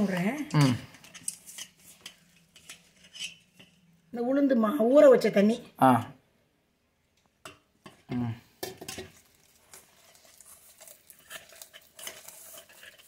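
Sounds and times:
knocks and scrapes on metal pot: 0.0 - 3.8, 7.4 - 9.2
hand stirring wet batter: 0.0 - 4.1, 7.5 - 13.0.

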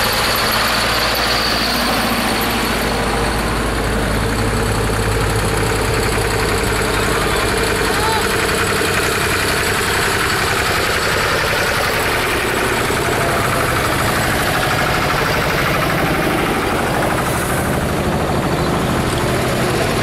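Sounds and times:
tractor engines running: 0.0 - 20.0.

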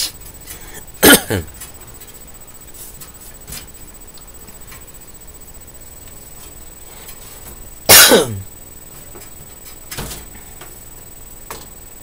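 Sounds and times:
person coughing: 1.0 - 1.5, 7.9 - 8.5.

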